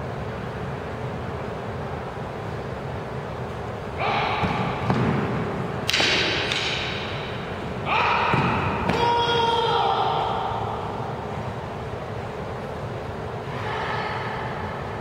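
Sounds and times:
people shouting cries: 4.0 - 4.8, 7.8 - 11.1, 13.4 - 15.0.

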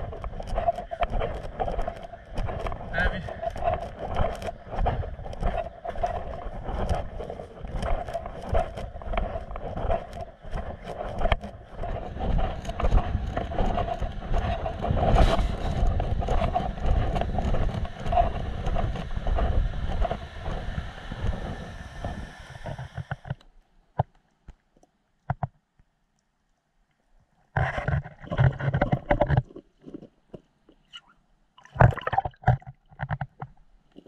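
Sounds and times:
wind rumble on microphone: 0.0 - 23.4.

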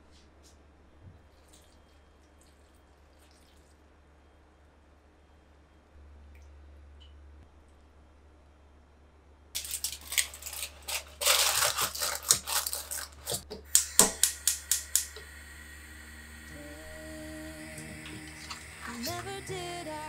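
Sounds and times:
aluminium foil crinkling: 9.6 - 15.2.

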